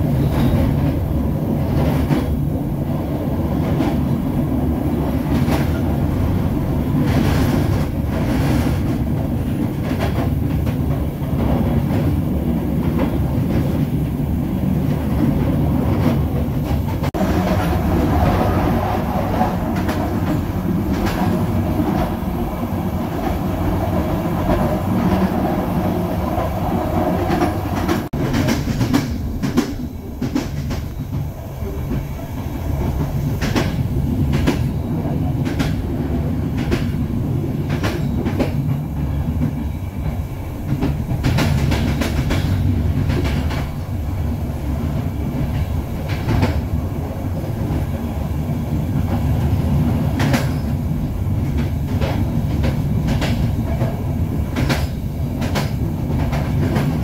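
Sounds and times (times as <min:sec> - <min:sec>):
train coach rumbling on track: 0:00.0 - 0:57.0
wheels clacking over rail joints: 0:14.7 - 0:48.0.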